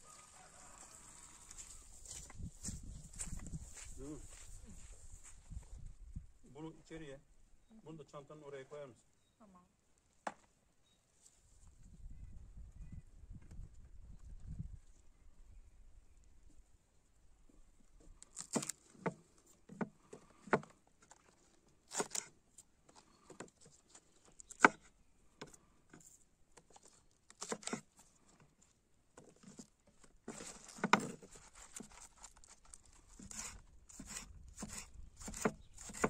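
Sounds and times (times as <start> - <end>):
rustling: 26.0 - 36.0.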